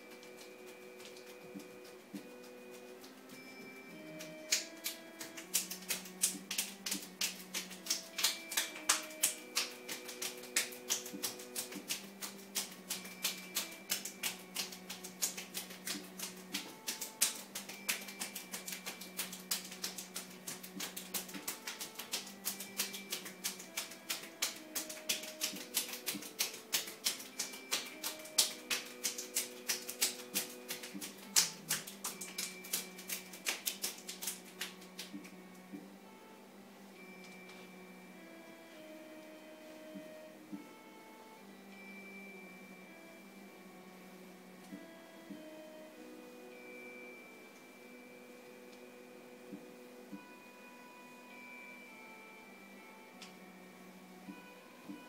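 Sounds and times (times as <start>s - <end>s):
soft background music: 0.0s - 55.0s
hands slapping on body: 4.2s - 35.4s.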